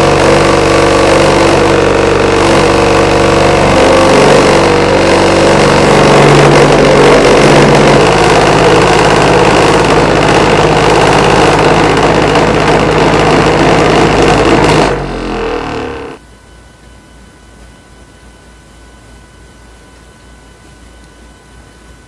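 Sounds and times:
cotton candy machine whirring: 0.0 - 16.2.

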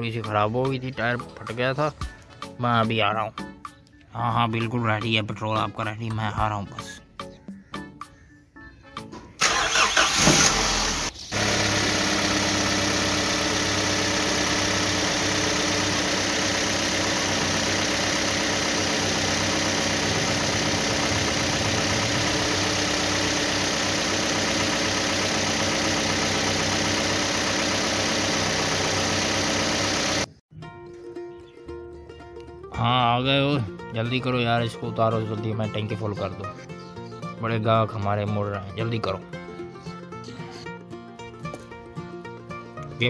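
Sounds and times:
truck engine starting and running: 9.1 - 30.4.

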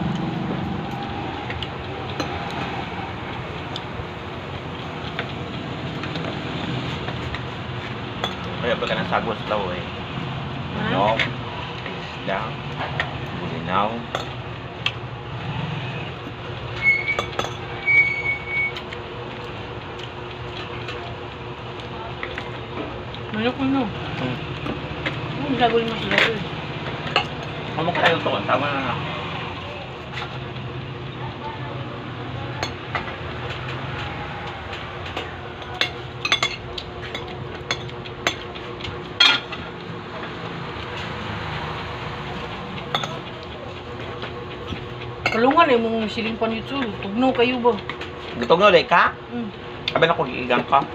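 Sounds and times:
steady background hum: 0.0 - 50.9
utensils clinking on plates: 8.2 - 9.1, 16.8 - 18.0, 35.0 - 39.7, 42.8 - 43.5, 44.6 - 45.6.

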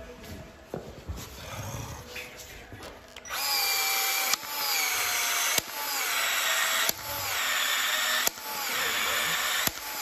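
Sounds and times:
expansion tool motor whining: 3.3 - 10.0.

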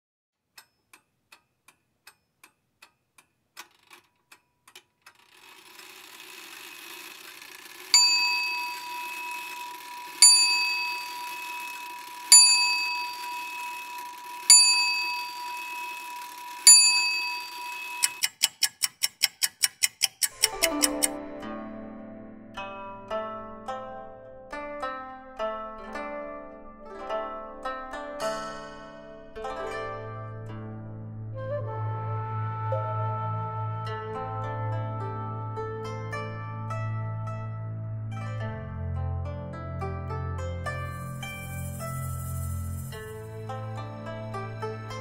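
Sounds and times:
clock ticking: 0.4 - 21.3
small bell ringing: 7.9 - 18.2
steady hiss: 41.0 - 43.6.

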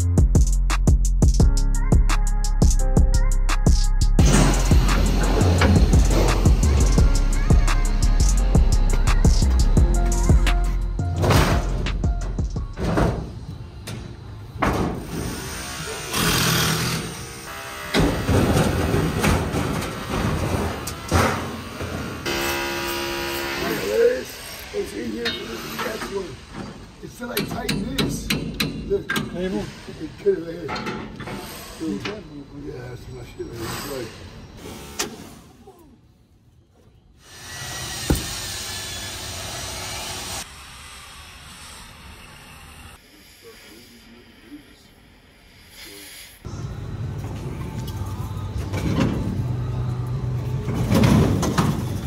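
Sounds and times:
background music: 0.0 - 13.1
demolition knocks and bangs: 18.0 - 22.0, 50.7 - 52.0
cutting torch gas hissing: 37.2 - 46.5.

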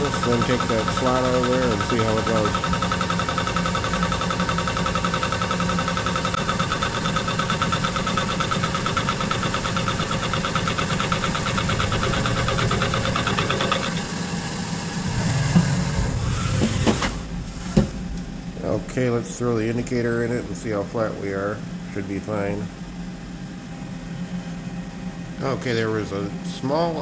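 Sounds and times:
milling machine spindle running: 0.0 - 27.0
sharp knocks: 15.0 - 19.0.

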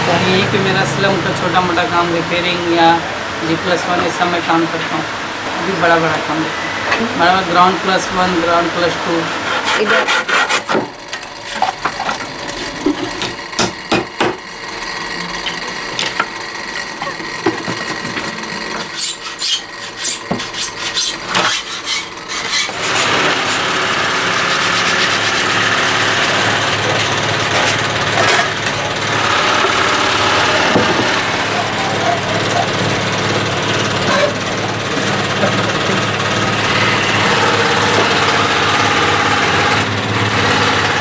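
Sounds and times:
steady loud noise: 0.0 - 9.8, 22.8 - 41.0
rasping and scraping wood: 9.2 - 13.2, 17.3 - 41.0
hand tools knocking wood: 11.6 - 14.4, 30.5 - 32.7.

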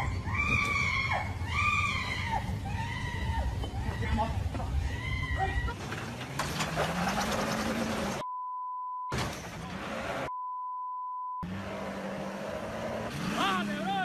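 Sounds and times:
censor bleeps: 8.2 - 9.1, 10.3 - 11.4.

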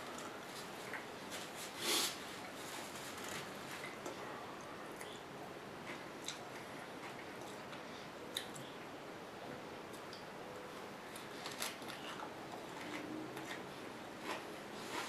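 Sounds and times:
person chewing crisp lettuce: 5.8 - 7.7, 11.1 - 15.0.

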